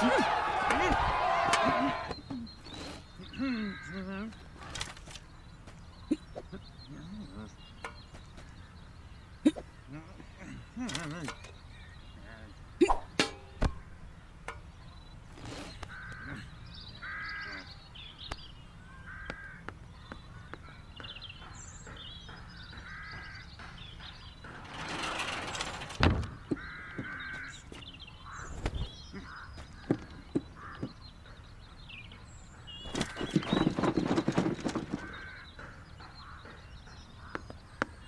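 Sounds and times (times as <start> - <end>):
crow cawing: 15.9 - 17.8, 18.9 - 19.7, 22.8 - 23.5, 26.3 - 30.0, 30.6 - 31.0.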